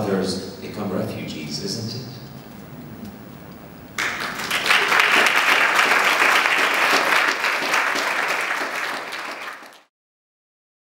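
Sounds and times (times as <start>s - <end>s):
audience applauding: 4.0s - 9.9s.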